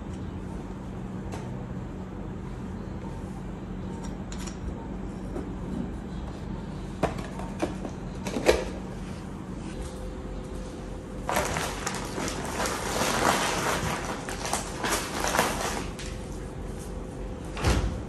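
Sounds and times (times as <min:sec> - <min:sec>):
low steady hum: 0:00.0 - 0:18.0
plastic bags rustling: 0:11.0 - 0:16.6.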